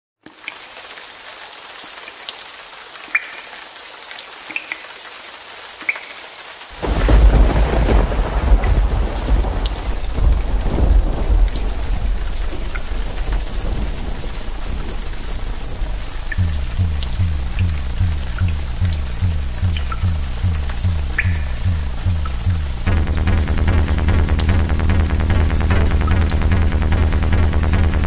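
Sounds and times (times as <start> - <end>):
rain: 0.2 - 28.0
deep thunder rumble: 6.8 - 28.0.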